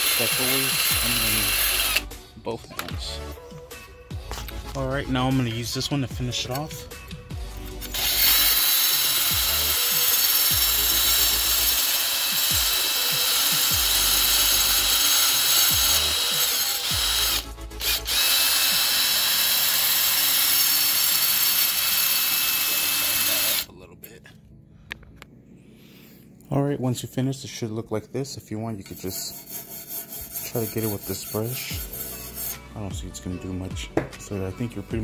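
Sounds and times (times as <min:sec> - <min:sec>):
drill wire brush scratching metal: 0:00.0 - 0:02.1, 0:07.7 - 0:23.7, 0:28.8 - 0:32.8.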